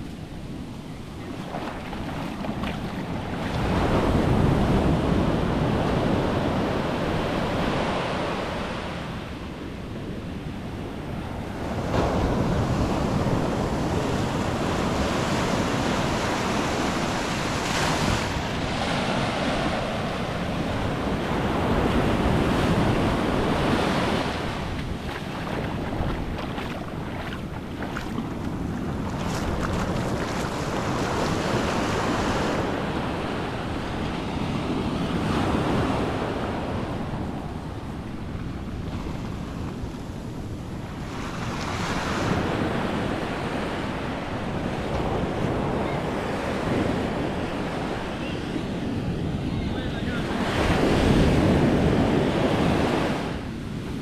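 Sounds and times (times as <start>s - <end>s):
wind buffeting microphone: 0.0s - 8.1s, 9.0s - 54.0s
ocean waves breaking: 0.0s - 9.4s, 10.8s - 54.0s.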